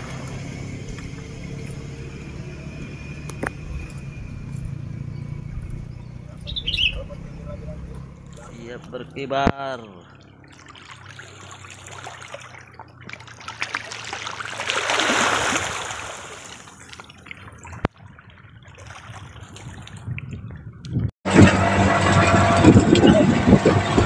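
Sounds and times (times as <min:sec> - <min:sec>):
seawater lapping at shoreline: 0:05.8 - 0:21.0.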